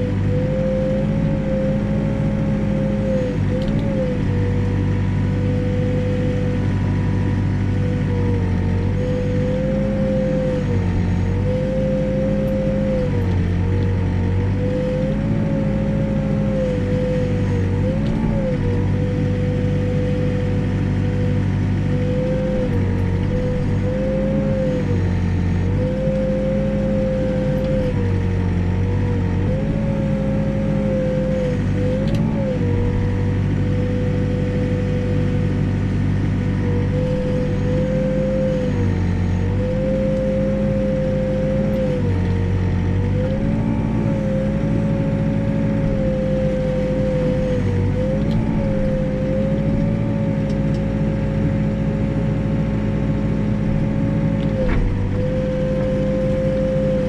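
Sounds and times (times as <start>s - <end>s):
diesel engine and hydraulics droning: 0.0s - 57.0s.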